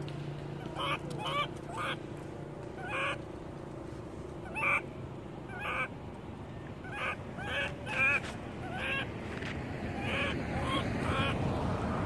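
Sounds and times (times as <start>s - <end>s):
low hum: 0.0s - 9.8s
baby monkey crying: 0.6s - 2.0s, 2.8s - 3.2s, 4.4s - 4.8s, 5.4s - 5.9s, 6.8s - 9.1s, 9.9s - 11.4s.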